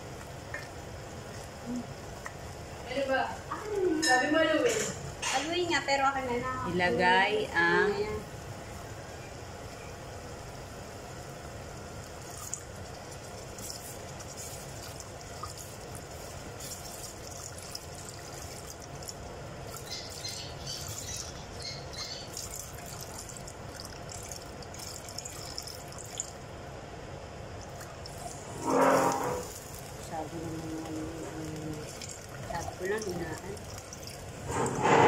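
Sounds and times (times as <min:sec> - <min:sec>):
milk pouring: 0:12.0 - 0:26.5, 0:27.5 - 0:34.8
spatula stirring in metal pot: 0:28.2 - 0:30.2.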